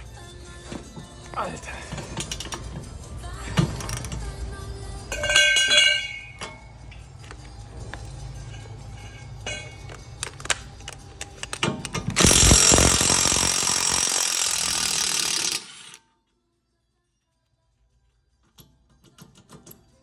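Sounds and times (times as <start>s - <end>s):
impact wrench hammering: 12.0s - 16.0s.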